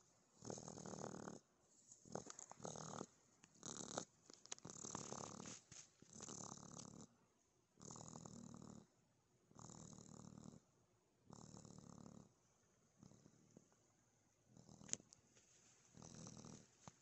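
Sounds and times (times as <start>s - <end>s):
baby raccoon purring: 0.0s - 7.2s, 7.8s - 13.8s, 14.4s - 15.2s, 15.9s - 17.0s.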